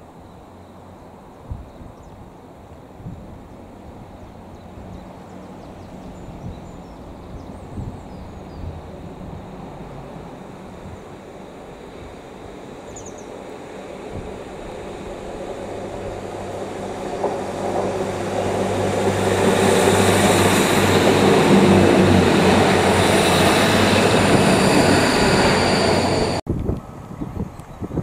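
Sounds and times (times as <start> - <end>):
diesel train engines droning: 3.6 - 27.1
train wheels rumbling on rails: 4.4 - 28.0
high ringing tones: 24.0 - 26.4.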